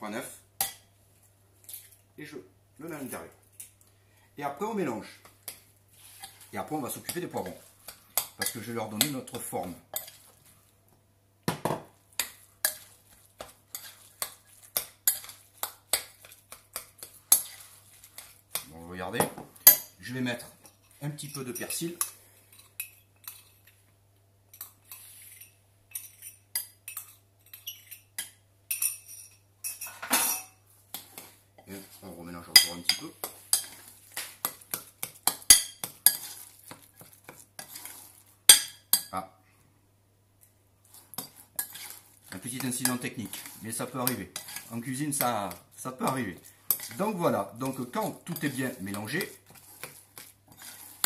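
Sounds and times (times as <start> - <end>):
utensil stirring in glass bowl: 5.3 - 10.7, 12.1 - 18.7, 30.9 - 39.1, 40.8 - 51.0
metal spoon clinking on glass: 25.9 - 30.6.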